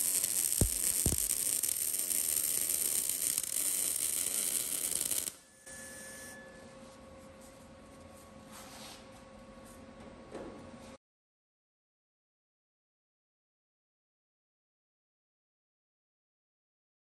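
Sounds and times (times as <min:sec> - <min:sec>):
welding arc crackling and hissing: 0:00.0 - 0:05.4
faint shop hum: 0:00.0 - 0:11.0
sharp pops: 0:00.4 - 0:01.7.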